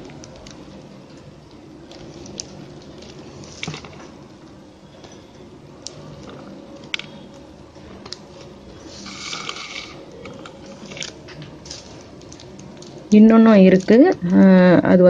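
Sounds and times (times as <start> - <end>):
scratchy rustle of wire drawn through: 8.8 - 10.0.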